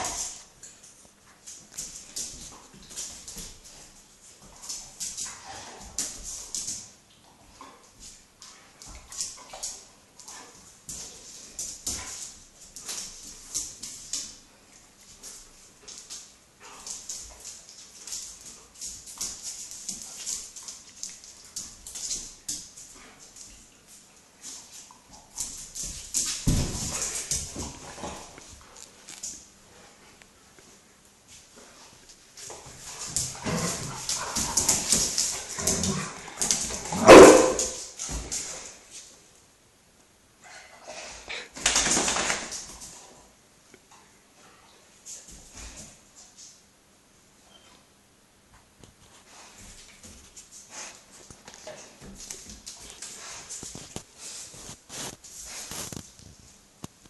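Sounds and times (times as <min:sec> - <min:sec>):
dogs scuffling on tile floor: 0:00.0 - 0:39.4, 0:40.5 - 0:46.7, 0:48.5 - 0:57.0
dog barking: 0:37.0 - 0:37.8.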